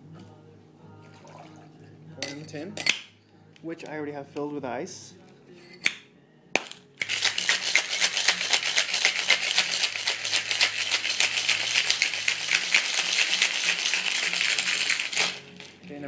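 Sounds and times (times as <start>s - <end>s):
ice rattling in cocktail shaker: 7.0s - 15.8s.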